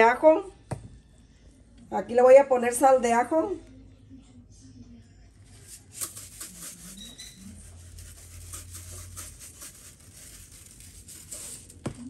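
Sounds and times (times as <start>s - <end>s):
salt shaker rattling: 5.7s - 7.1s, 7.9s - 11.8s.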